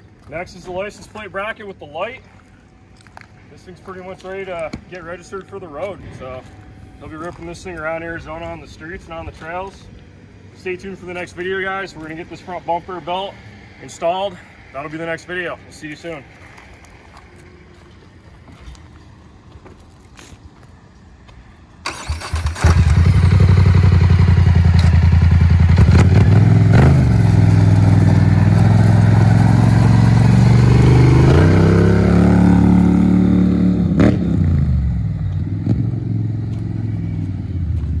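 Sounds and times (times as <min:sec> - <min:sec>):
engine cranking: 0:21.8 - 0:23.5.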